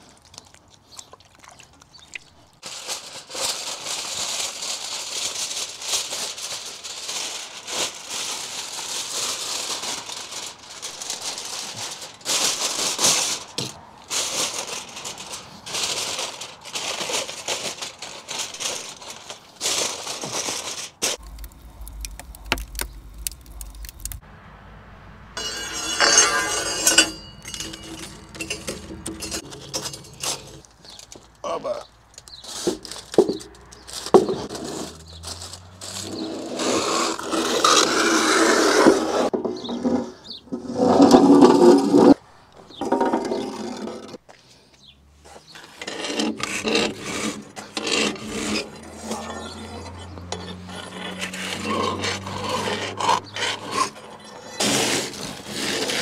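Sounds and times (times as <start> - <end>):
metal scraping on brick: 25.4 - 31.0, 32.4 - 44.2, 45.3 - 56.0.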